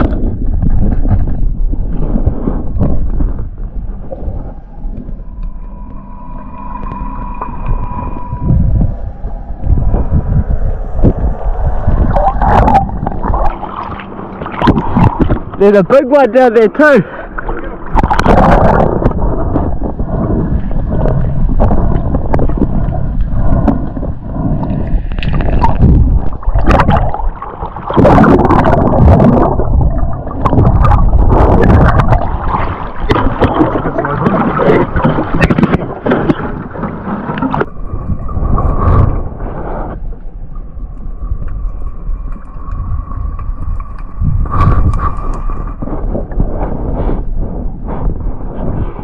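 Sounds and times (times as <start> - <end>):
faint steady hum: 0.0 - 49.0
water splashing and sloshing: 0.0 - 49.0
muffled underwater noise: 4.0 - 40.6.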